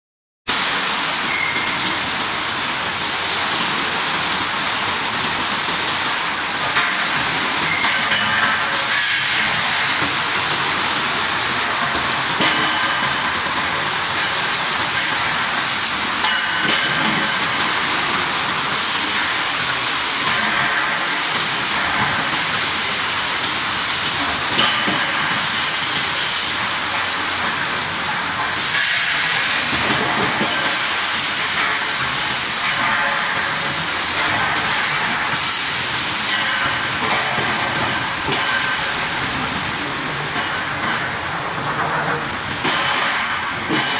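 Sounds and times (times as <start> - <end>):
pipe machine harsh hissing: 13.8 - 16.2, 18.6 - 24.4, 30.6 - 39.2.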